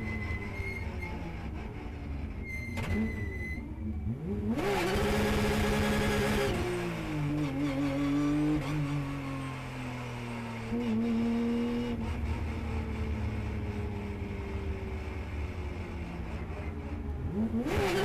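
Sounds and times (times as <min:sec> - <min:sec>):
race car engine accelerating: 0:03.8 - 0:09.1, 0:17.0 - 0:18.0.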